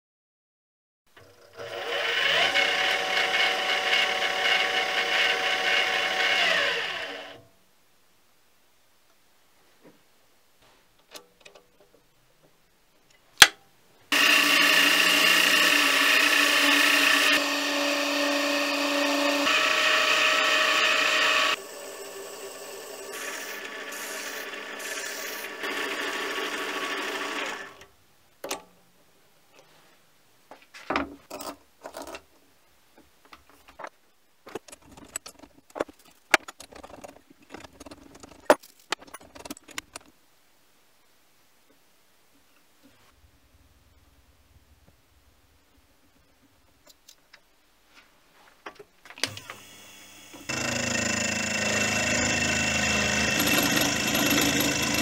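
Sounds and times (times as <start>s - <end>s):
lathe motor running: 1.5s - 7.4s, 14.1s - 27.8s, 49.3s - 55.0s
file on spinning metal: 14.2s - 27.8s, 50.5s - 55.0s
metal parts clicking and knocking: 33.8s - 40.1s.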